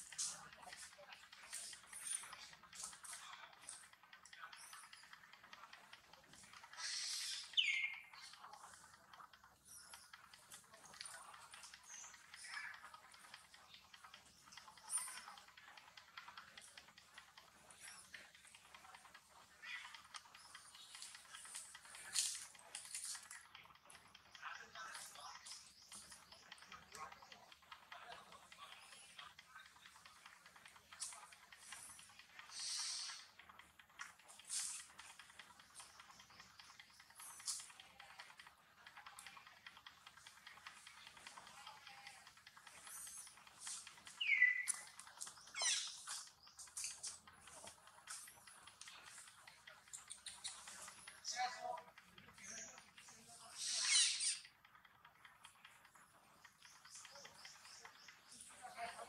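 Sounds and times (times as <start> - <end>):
high chirp: 44.1 - 44.9.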